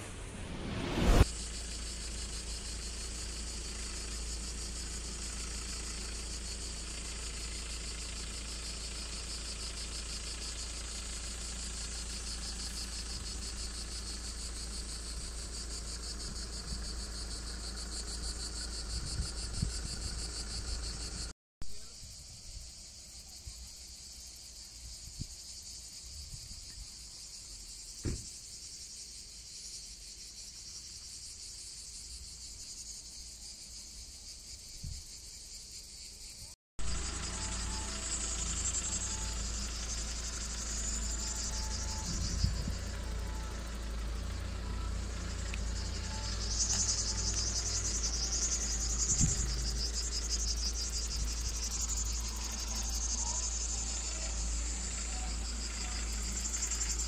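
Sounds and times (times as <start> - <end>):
insects chirring: 1.2 - 57.0
wind rumble on microphone: 18.8 - 20.6, 42.1 - 42.8.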